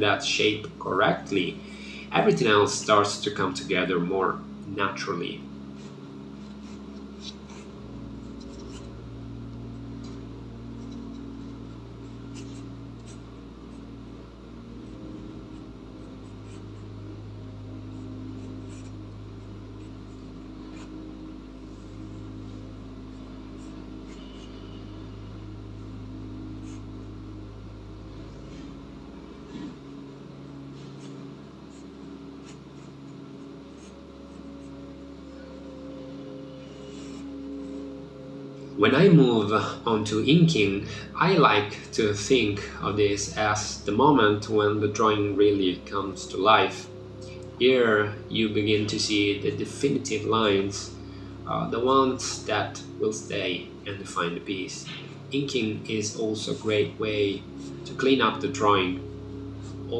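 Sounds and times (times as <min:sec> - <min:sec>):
low drone shifting pitch: 0:00.0 - 0:59.9
pencil scratching on paper: 0:05.7 - 0:09.0, 0:12.0 - 0:13.9, 0:14.8 - 0:17.0, 0:17.9 - 0:19.0, 0:19.8 - 0:21.0, 0:21.7 - 0:25.0, 0:26.6 - 0:26.9, 0:30.8 - 0:34.8, 0:36.6 - 0:37.9.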